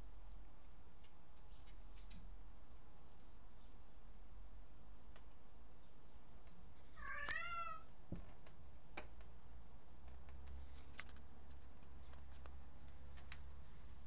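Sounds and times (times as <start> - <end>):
cat meowing: 7.0 - 7.9.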